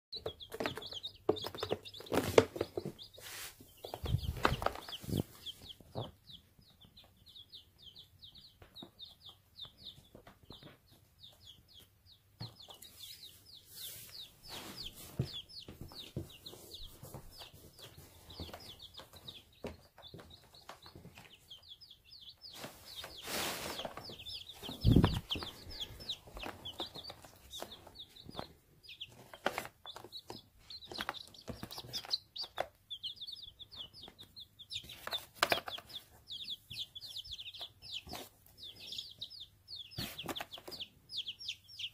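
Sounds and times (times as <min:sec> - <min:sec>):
chicks peeping: 0:00.1 - 0:41.9
thumps and rustles: 0:03.8 - 0:06.2, 0:22.5 - 0:28.5.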